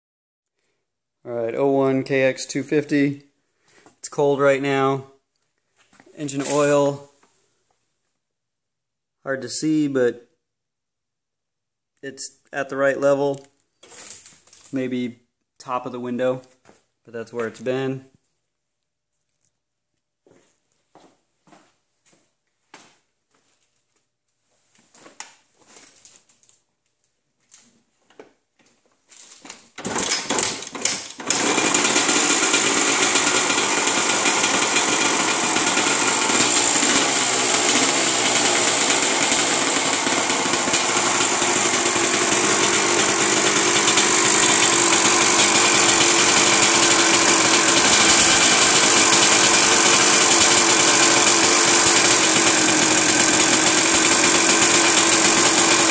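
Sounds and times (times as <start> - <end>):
two-stroke engine starting and idling: 29.8 - 55.9.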